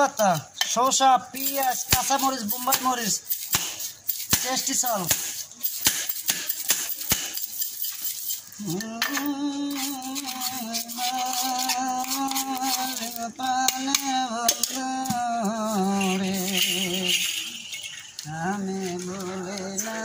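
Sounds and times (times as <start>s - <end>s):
tin mug rattling: 5.6s - 14.8s, 15.6s - 18.3s.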